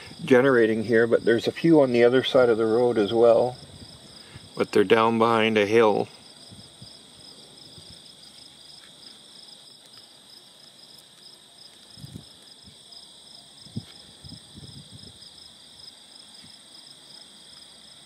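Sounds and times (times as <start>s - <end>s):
crickets and insects trilling: 0.0s - 18.0s
wind gusts on microphone: 3.2s - 4.6s, 6.3s - 8.1s, 11.9s - 12.8s, 13.6s - 15.4s.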